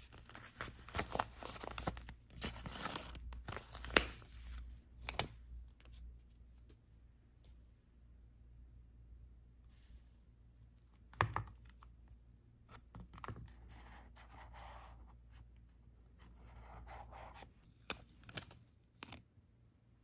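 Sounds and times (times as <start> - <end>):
paper rustling: 0.0 - 6.3.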